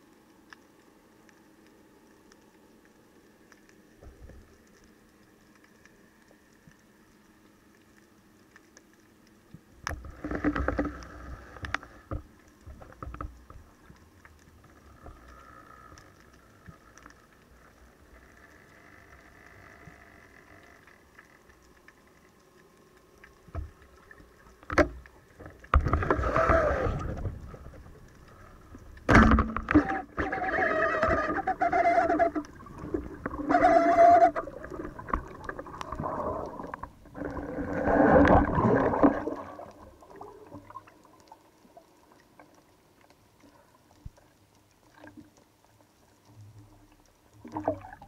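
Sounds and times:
water rushing past underwater: 23.2 - 42.5, 47.4 - 48.0
sharp clicks and knocks: 28.9 - 30.0.

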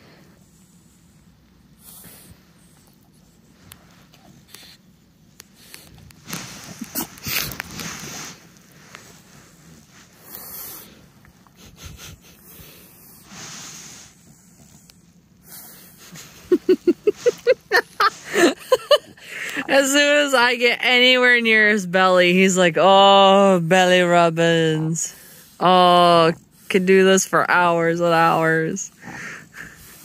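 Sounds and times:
dog snorting and wheezing: 0.0 - 20.2, 28.9 - 30.0.

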